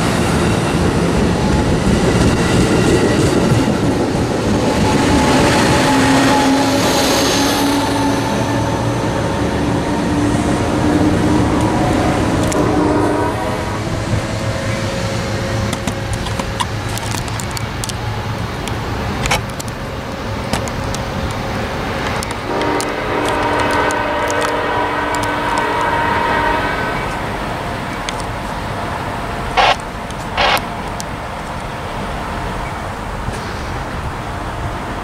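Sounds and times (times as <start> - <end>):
low train rumble: 0.0 - 35.0
train horn blast: 4.7 - 14.4, 22.5 - 27.2.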